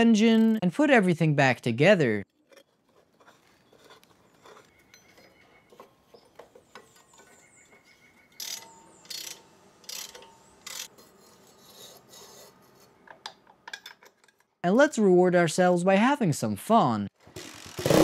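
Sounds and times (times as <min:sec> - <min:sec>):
rasping metal strokes: 0:02.3 - 0:13.0.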